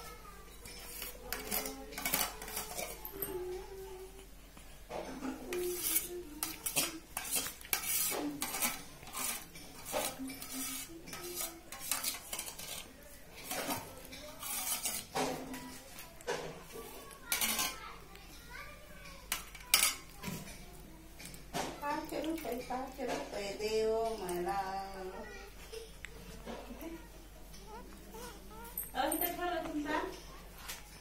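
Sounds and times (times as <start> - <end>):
metal dishes and cutlery clinking: 0.0 - 3.6, 4.9 - 24.9.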